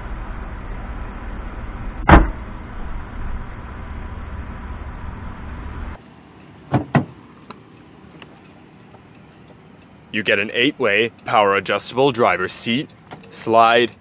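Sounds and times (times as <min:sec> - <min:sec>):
low rumble: 0:00.0 - 0:06.0
car door latch clicks: 0:06.7 - 0:07.2
car hood slamming: 0:06.7 - 0:07.2.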